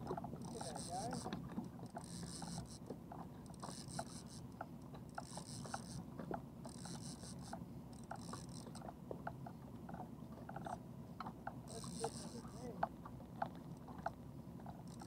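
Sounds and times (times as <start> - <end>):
fishing reel clicking: 0.4 - 6.0, 6.6 - 8.9, 11.7 - 12.8.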